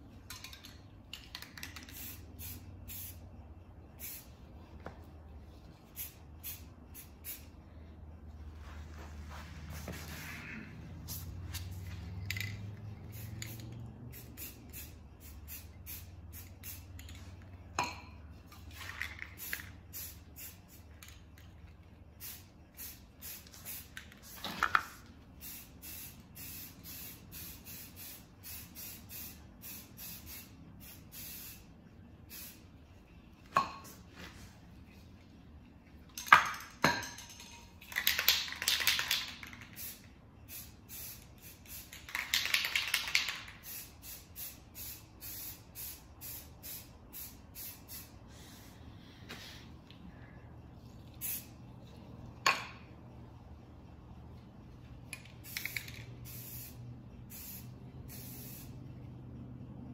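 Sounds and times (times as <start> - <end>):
spray paint can hissing: 1.1 - 3.2, 3.9 - 4.4, 5.8 - 7.6, 11.0 - 17.4, 18.5 - 21.4, 22.2 - 31.7, 32.3 - 32.6, 37.9 - 48.7, 51.1 - 51.6, 55.2 - 58.8.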